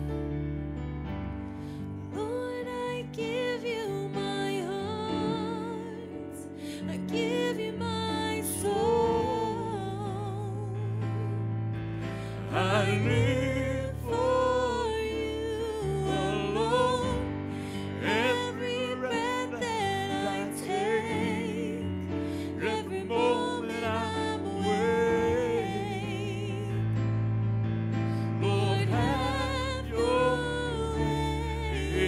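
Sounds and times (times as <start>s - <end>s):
woman singing with vibrato: 2.2s - 10.9s, 13.6s - 26.8s, 28.4s - 32.0s.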